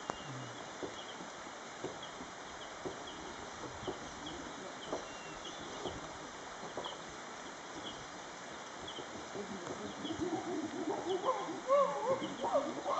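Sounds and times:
outdoor hiss: 0:00.0 - 0:12.9.

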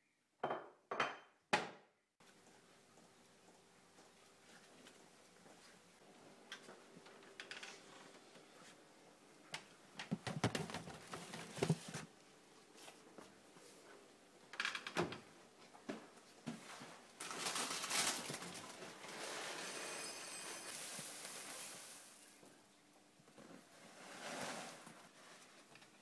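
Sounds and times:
knocks and clatters in cupboard: 0:10.0 - 0:12.1
cereal box crinkling rustle: 0:17.2 - 0:19.7.

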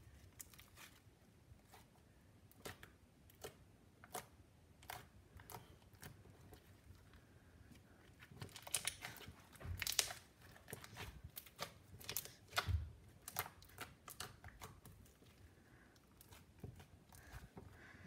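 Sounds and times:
slime squished by hand: 0:08.1 - 0:15.3.

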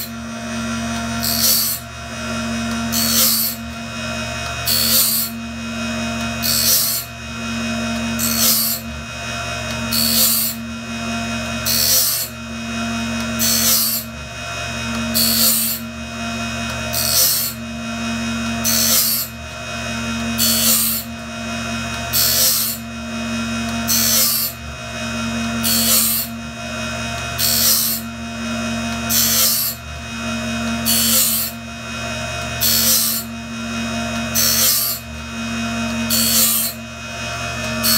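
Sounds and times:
hissing grind of blade sharpener: 0:00.0 - 0:09.0, 0:09.7 - 0:10.7, 0:11.5 - 0:12.4, 0:13.0 - 0:15.9, 0:16.7 - 0:19.4, 0:20.2 - 0:21.1, 0:22.0 - 0:24.6, 0:25.4 - 0:26.4, 0:27.2 - 0:31.6, 0:32.4 - 0:36.9, 0:37.5 - 0:37.9
machine hum: 0:00.0 - 0:37.9.

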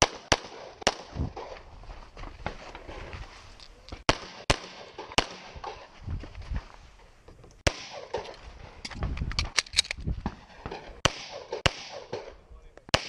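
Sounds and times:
pistol shots: 0:00.0 - 0:01.6, 0:04.1 - 0:05.9, 0:07.6 - 0:08.3, 0:10.3 - 0:13.0.

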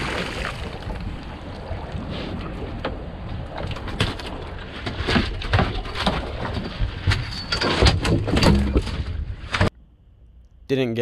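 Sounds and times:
knocks and thumps on boat: 0:02.4 - 0:09.7.

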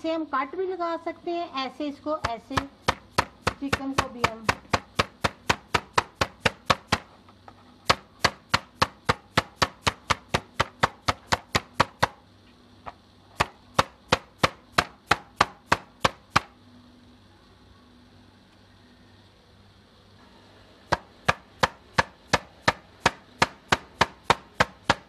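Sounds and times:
mallet pounding raw chicken: 0:02.2 - 0:07.1, 0:07.8 - 0:12.2, 0:13.4 - 0:16.5, 0:20.9 - 0:25.0.

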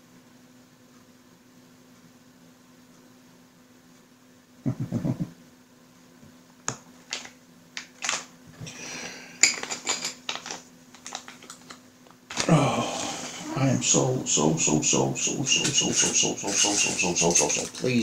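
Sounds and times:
plastic bag crinkling: 0:10.3 - 0:11.8.

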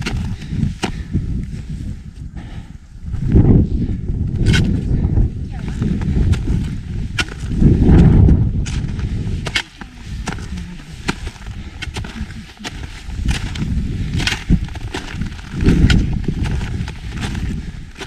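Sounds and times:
wind rumble on microphone: 0:00.0 - 0:18.0
footsteps crunching on snow: 0:05.6 - 0:18.0.

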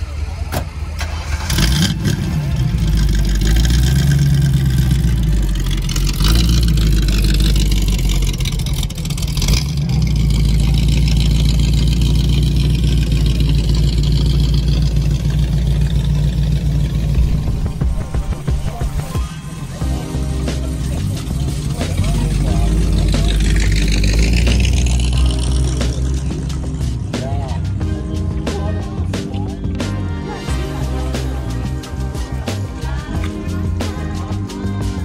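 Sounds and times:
car engine starting and revving: 0:00.0 - 0:27.8.

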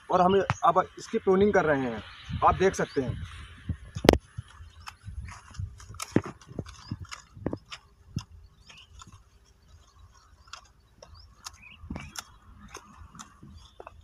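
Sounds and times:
secateurs snipping stems: 0:04.0 - 0:09.3, 0:09.9 - 0:14.0.

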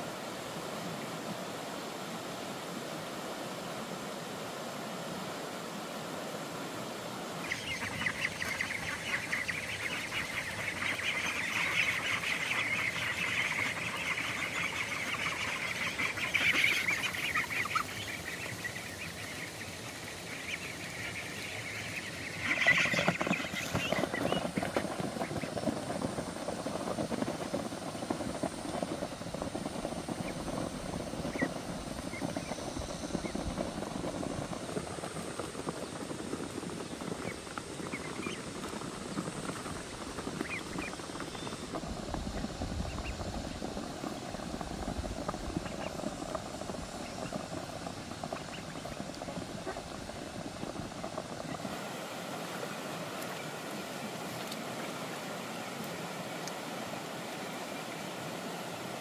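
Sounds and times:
ducks quacking: 0:07.4 - 0:34.6, 0:48.3 - 0:50.1.

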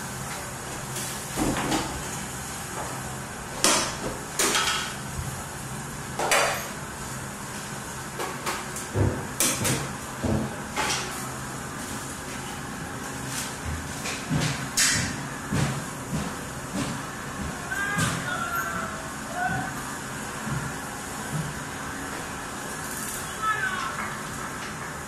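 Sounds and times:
scrapes and knocks on furniture: 0:13.3 - 0:18.2.

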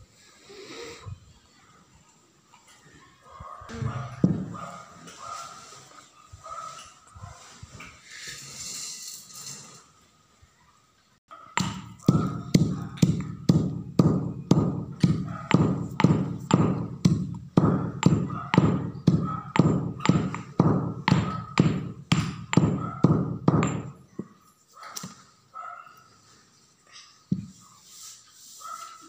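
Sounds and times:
stone pestle pounding in mortar: 0:11.6 - 0:24.0.

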